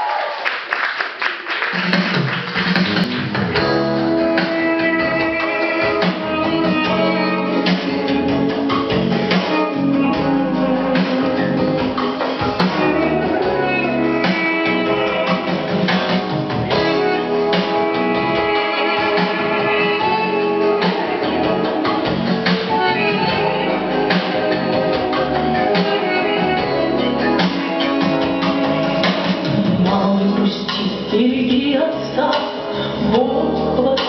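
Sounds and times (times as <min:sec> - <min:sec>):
applause: 0:00.0 - 0:03.5
pop song with guitar and drums: 0:03.1 - 0:34.0.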